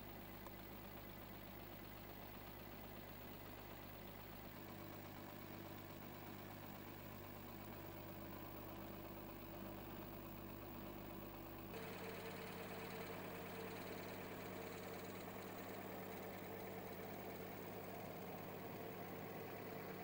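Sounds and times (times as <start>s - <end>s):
low mechanical hum: 11.6s - 20.0s
faint steady tones: 11.8s - 20.0s.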